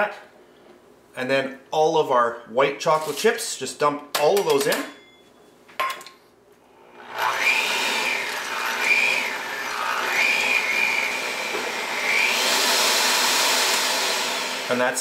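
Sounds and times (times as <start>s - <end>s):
electric hand mixer whining: 6.8s - 14.8s.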